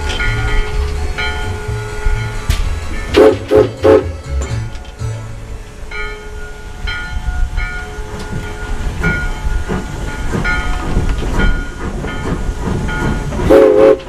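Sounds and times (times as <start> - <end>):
steam locomotive exhaust chuffs: 0.0 - 14.0
engine bell ringing: 0.1 - 3.3, 3.9 - 10.8
steam whistle blowing: 3.1 - 4.3, 13.5 - 14.0.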